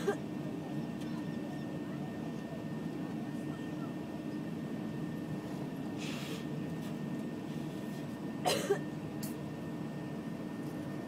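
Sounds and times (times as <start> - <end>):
low aircraft cabin drone: 0.0 - 11.0
cough-like burst: 8.4 - 8.9.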